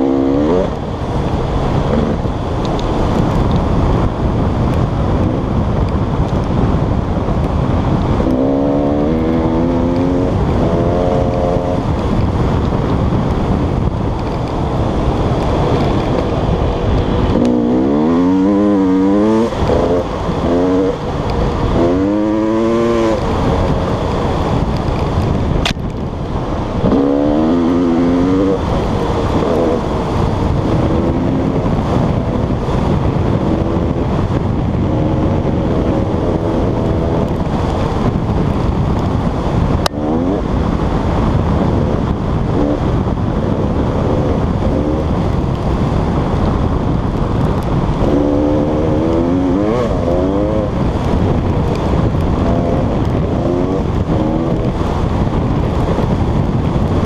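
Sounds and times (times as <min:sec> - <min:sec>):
dirt bike engine revving: 0:00.0 - 0:01.0, 0:08.1 - 0:11.9, 0:14.7 - 0:24.7, 0:26.8 - 0:34.1, 0:39.8 - 0:45.4, 0:47.8 - 0:55.2
ground rumble: 0:00.0 - 0:57.0
wind on microphone: 0:00.0 - 0:57.0.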